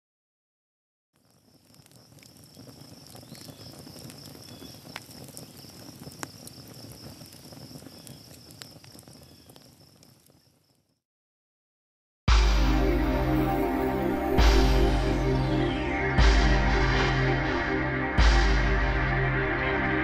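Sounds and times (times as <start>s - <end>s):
insects trilling: 1.2s - 11.0s.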